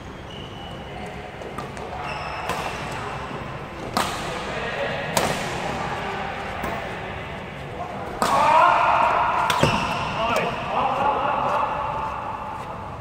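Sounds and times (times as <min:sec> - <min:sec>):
shoe squeaks on court: 0:00.0 - 0:01.1, 0:01.9 - 0:02.9
rackets striking shuttlecock: 0:01.5 - 0:03.2, 0:03.8 - 0:04.5, 0:05.1 - 0:05.7, 0:08.1 - 0:10.6.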